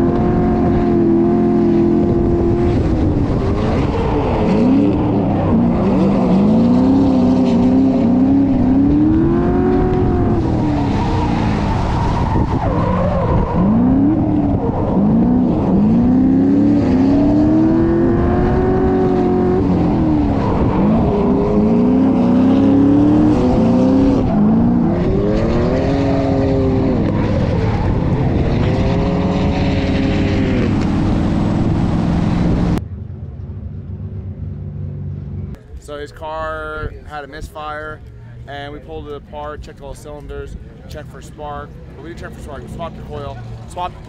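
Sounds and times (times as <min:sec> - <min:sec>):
car engine revving: 0:00.0 - 0:32.8.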